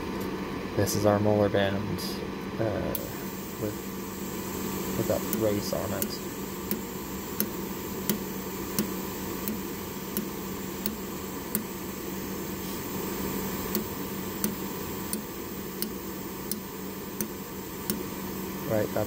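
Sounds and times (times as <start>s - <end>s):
steady background hum: 0.0s - 19.0s
laser welder clicks: 3.0s - 3.8s, 5.0s - 11.8s, 13.6s - 18.1s.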